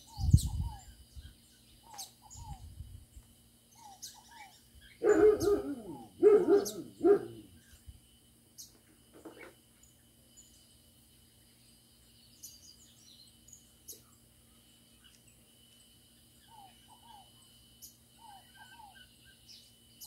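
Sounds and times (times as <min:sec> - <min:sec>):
small birds chirping: 0:00.0 - 0:20.0
dog barking: 0:05.0 - 0:07.5.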